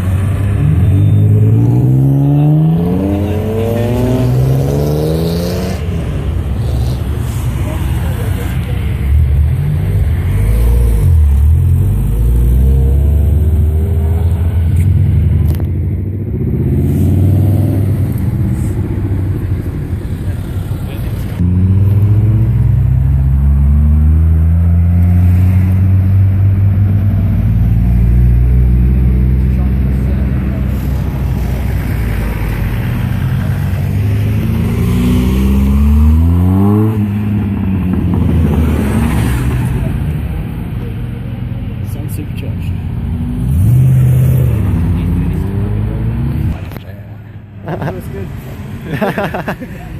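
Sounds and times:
cars accelerating past: 0:00.0 - 0:15.7, 0:21.4 - 0:41.0, 0:42.9 - 0:46.8.

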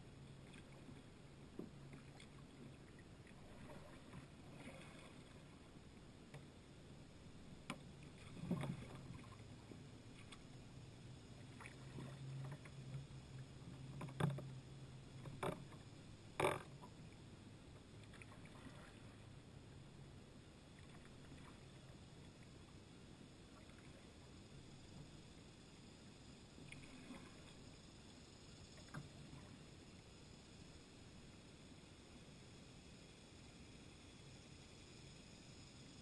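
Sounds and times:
paddle strokes in water: 0:00.0 - 0:06.6, 0:07.6 - 0:10.7, 0:11.3 - 0:17.0, 0:17.8 - 0:19.4, 0:20.7 - 0:22.5, 0:26.6 - 0:27.7.

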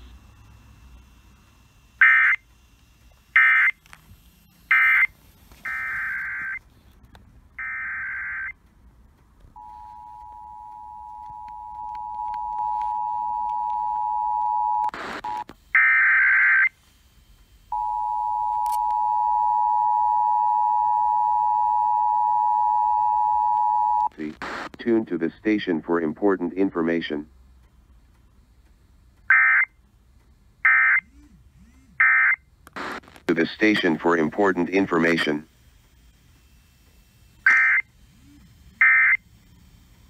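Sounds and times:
radio crackle: 0:00.0 - 0:08.6, 0:09.4 - 0:17.8, 0:24.0 - 0:27.3, 0:32.0 - 0:36.4
screeching digital data bursts: 0:04.4 - 0:06.6, 0:32.0 - 0:40.0.

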